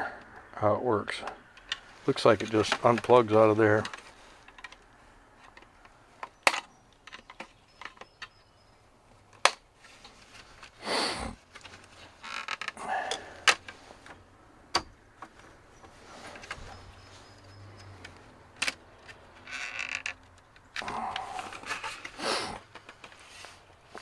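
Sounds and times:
rustle: 0:01.5 - 0:24.0
plastic and metal clicks: 0:17.8 - 0:19.2.

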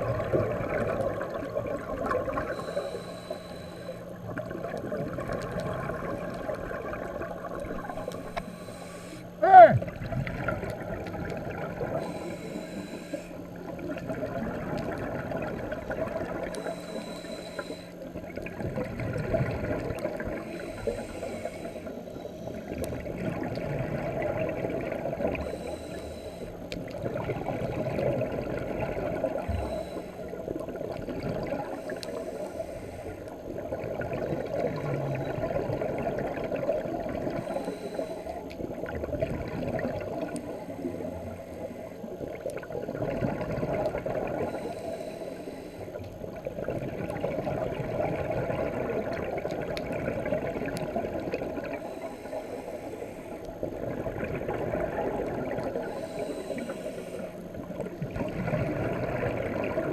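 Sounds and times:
gurgling exhaled bubbles: 0:00.0 - 0:02.7, 0:04.2 - 0:08.4, 0:09.7 - 0:12.2, 0:13.4 - 0:16.6, 0:18.1 - 0:21.1, 0:22.5 - 0:25.6, 0:26.8 - 0:32.3, 0:33.1 - 0:37.6, 0:38.6 - 0:40.5, 0:42.0 - 0:44.6, 0:46.2 - 0:52.0, 0:53.3 - 0:56.3, 0:57.4 - 0:59.9
regulator hissing inhalations: 0:02.5 - 0:04.0, 0:07.8 - 0:09.4, 0:12.0 - 0:13.5, 0:16.6 - 0:18.0, 0:20.5 - 0:22.6, 0:25.4 - 0:26.6, 0:29.4 - 0:30.4, 0:31.7 - 0:33.3, 0:37.4 - 0:38.4, 0:44.5 - 0:46.0, 0:51.8 - 0:53.4, 0:55.8 - 0:57.5.

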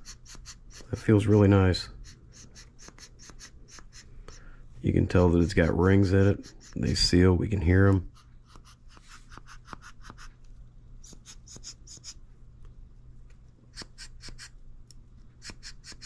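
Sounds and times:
piston strokes rubbing in cylinder: 0:00.0 - 0:04.5, 0:05.1 - 0:07.2, 0:08.1 - 0:10.4, 0:11.0 - 0:12.2, 0:13.8 - 0:14.6, 0:15.4 - 0:16.0.

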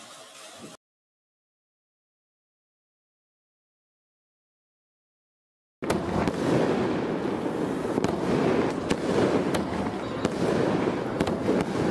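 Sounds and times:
fireworks crackling: 0:05.8 - 0:11.9
sharp firework pops: 0:05.8 - 0:11.9.

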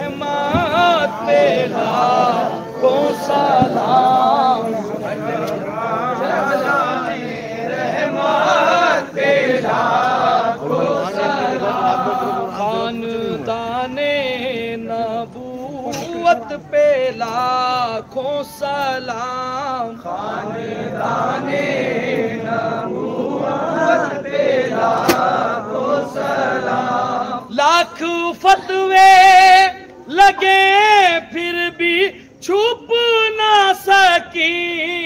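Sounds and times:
men chanting together: 0:00.0 - 0:15.2, 0:19.2 - 0:31.4.

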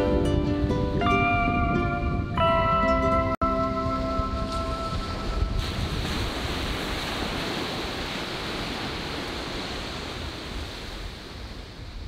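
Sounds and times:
wind rumbling on microphone: 0:00.0 - 0:12.0
waves breaking on sand: 0:03.8 - 0:12.0.

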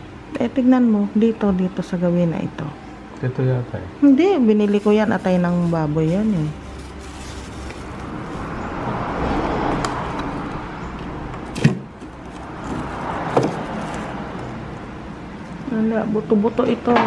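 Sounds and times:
plastic bags rustling: 0:04.6 - 0:08.6.

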